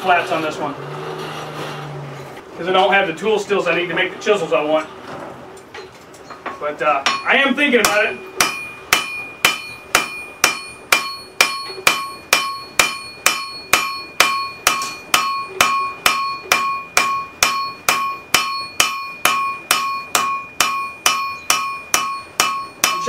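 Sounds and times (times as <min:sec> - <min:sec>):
hammer striking metal on anvil: 0:06.4 - 0:23.0.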